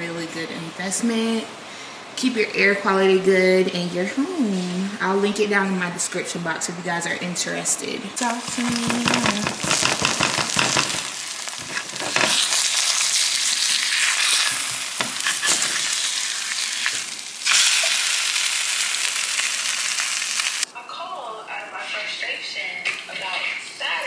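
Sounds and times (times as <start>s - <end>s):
egg sizzling in skillet: 8.2s - 20.7s
spatula scraping skillet: 8.3s - 19.0s.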